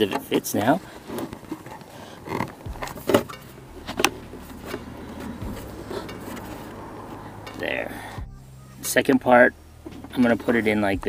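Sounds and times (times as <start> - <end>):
hard plastic knocks and clacks: 0.0 - 4.8.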